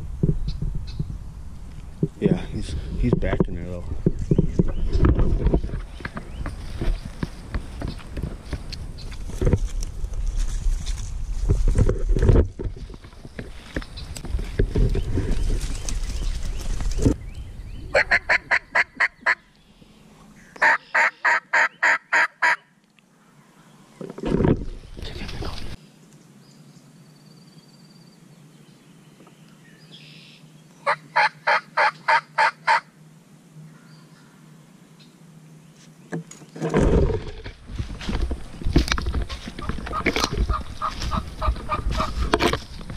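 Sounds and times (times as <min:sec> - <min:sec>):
wind rumble on microphone: 0:00.0 - 0:19.3, 0:36.7 - 0:42.9
rustling and handling knocks: 0:10.9 - 0:16.0, 0:36.1 - 0:42.9
turkey yelps: 0:17.9 - 0:19.4, 0:20.6 - 0:22.6, 0:30.8 - 0:32.8.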